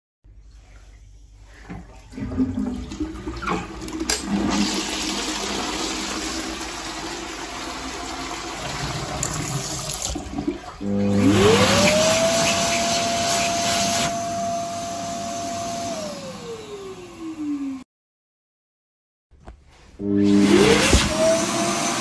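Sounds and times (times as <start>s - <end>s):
toilet flushing: 1.5s - 14.0s
hand dryer motor whine: 10.8s - 17.8s, 20.0s - 22.0s.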